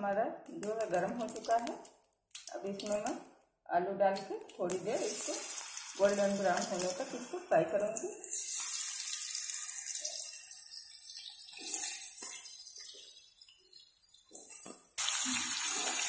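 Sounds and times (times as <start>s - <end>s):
potatoes sizzling in oil: 4.2s - 13.3s, 15.0s - 16.0s.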